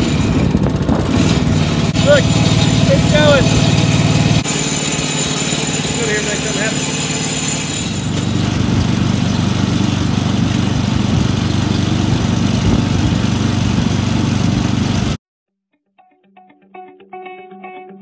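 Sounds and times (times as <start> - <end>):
small engine running: 0.0 - 15.2
faint guitar music: 15.7 - 18.0.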